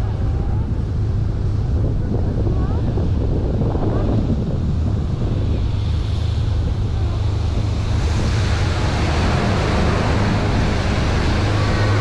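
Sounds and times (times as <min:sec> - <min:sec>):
wind on microphone: 0:00.0 - 0:12.0
boat engine humming: 0:04.7 - 0:12.0
water rushing past hull: 0:05.6 - 0:12.0.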